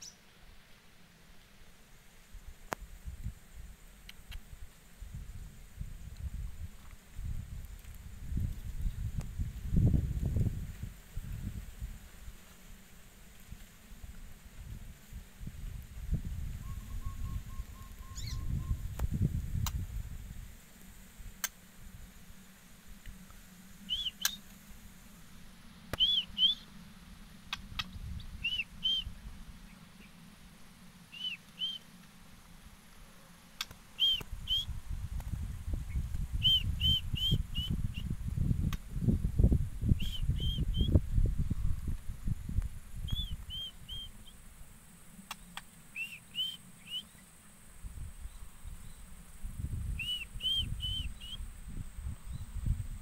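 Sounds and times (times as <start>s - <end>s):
bird whistled calls: 16.6s - 18.8s, 23.9s - 24.4s, 26.0s - 26.7s, 27.8s - 29.1s, 31.1s - 31.9s, 34.0s - 34.7s, 36.4s - 38.1s, 40.0s - 41.0s, 43.0s - 44.4s, 45.9s - 47.2s, 49.9s - 51.4s.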